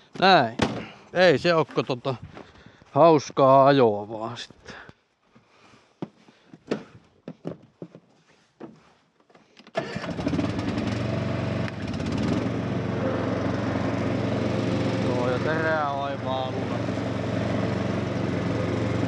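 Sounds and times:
ride-on mower engine running: 9.8 - 19.0.

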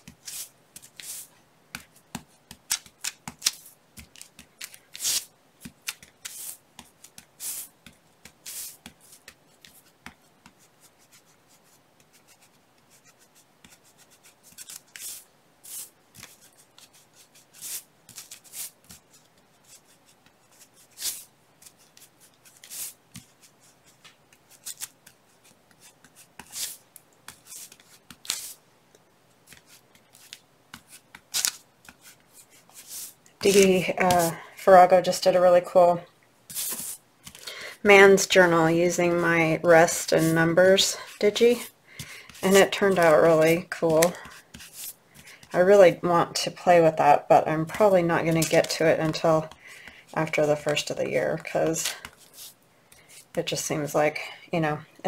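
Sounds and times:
sponge dabbing on paper: 0.0 - 28.6, 29.4 - 35.8, 36.5 - 37.0, 38.0 - 45.6, 47.7 - 53.5
paper rustling: 12.1 - 28.6, 29.4 - 34.6, 36.5 - 37.4, 39.1 - 45.5.

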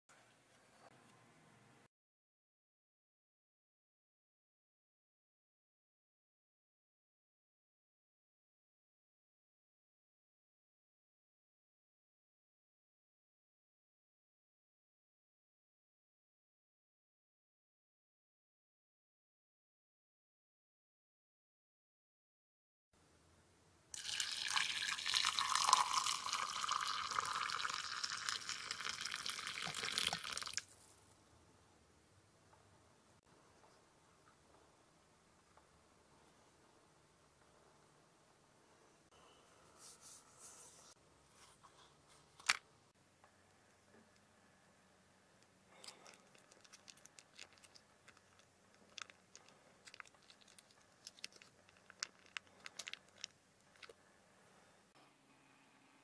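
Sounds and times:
hot water pouring into jug: 24.0 - 30.7
small sticky clicks: 45.4 - 54.0
foil pouch crinkling: 45.8 - 53.9.

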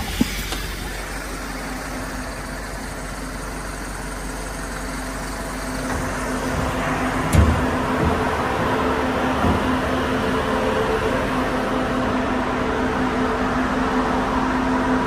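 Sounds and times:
diesel engine idling: 0.0 - 15.0
heavy thump: 5.8 - 8.6.

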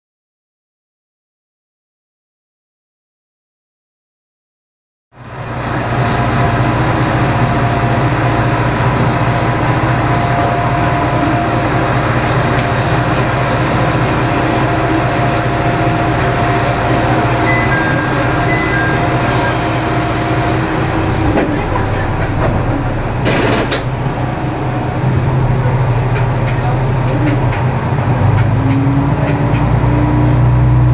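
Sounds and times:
railcar diesel engine idling: 5.2 - 29.9
short electronic beeps: 17.4 - 21.4.

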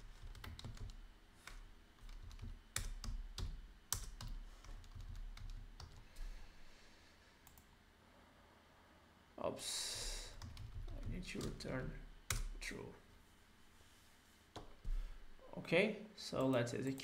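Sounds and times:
computer keyboard typing: 0.0 - 6.0, 10.4 - 12.6.

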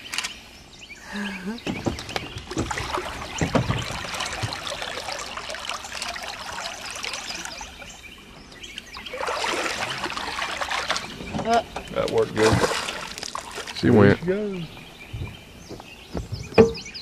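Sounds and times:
water splashing and trickling: 1.1 - 17.0
low thumps: 1.6 - 5.2, 14.8 - 17.0.

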